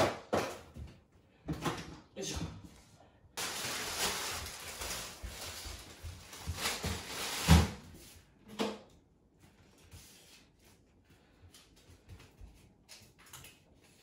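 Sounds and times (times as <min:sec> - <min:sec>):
plastic bag rustling: 0:03.4 - 0:08.0.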